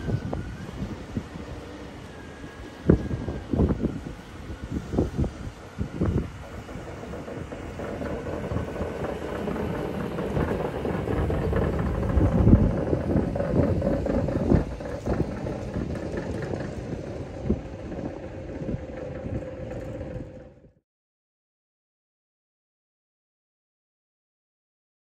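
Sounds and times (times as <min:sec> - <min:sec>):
driveshaft bearing whine: 0:00.0 - 0:20.8.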